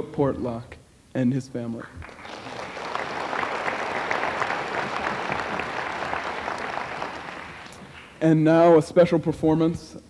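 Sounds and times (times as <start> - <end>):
audience applauding: 2.0 - 8.2.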